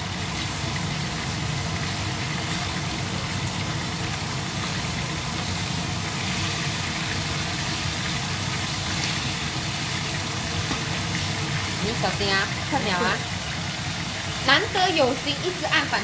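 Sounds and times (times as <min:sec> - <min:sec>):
fish frying in hot oil: 0:00.0 - 0:16.0.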